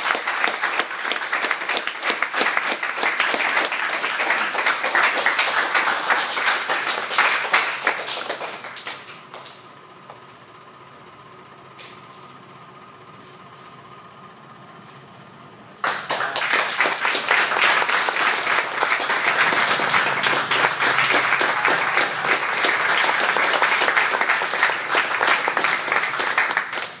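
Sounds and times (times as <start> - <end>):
people applauding: 0.0 - 9.7, 15.8 - 27.0
faint steady hum: 0.0 - 27.0.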